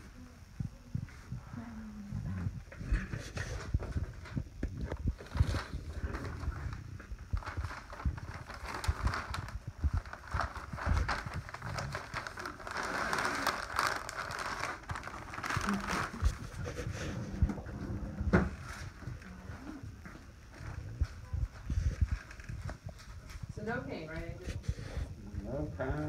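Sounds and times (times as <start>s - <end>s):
rustling: 1.1s - 25.2s
small items clicking and crinkling: 7.4s - 16.4s.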